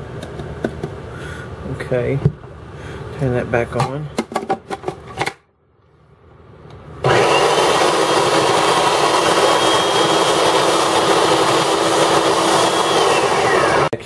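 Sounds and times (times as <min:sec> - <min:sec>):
food processor motor whining: 0:07.0 - 0:14.0.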